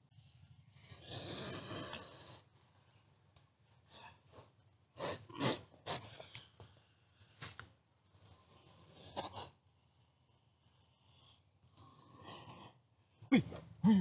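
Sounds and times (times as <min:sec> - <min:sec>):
snake hissing: 0:00.9 - 0:02.5.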